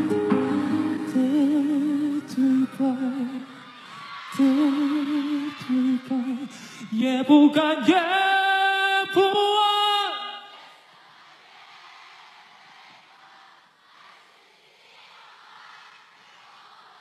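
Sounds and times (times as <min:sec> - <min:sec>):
man singing with vibrato: 0:00.0 - 0:03.7, 0:04.3 - 0:10.6.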